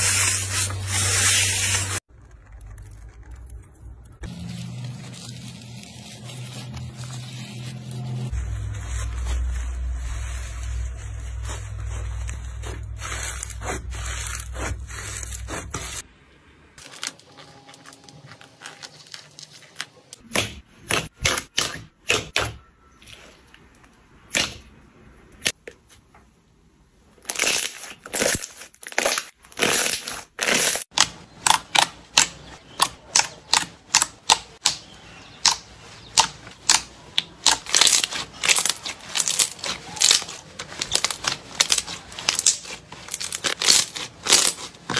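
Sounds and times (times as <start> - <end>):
slime crackling: 0.6 - 16.0, 27.3 - 44.9.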